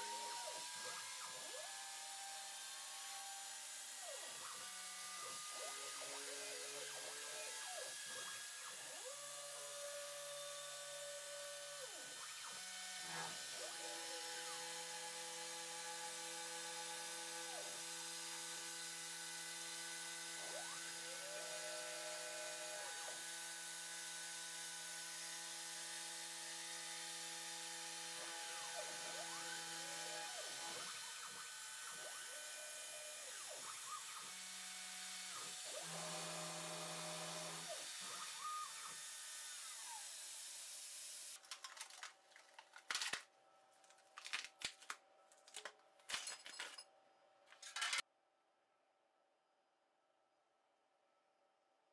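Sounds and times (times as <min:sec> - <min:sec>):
milling machine motor hum: 0:26.5 - 0:40.6.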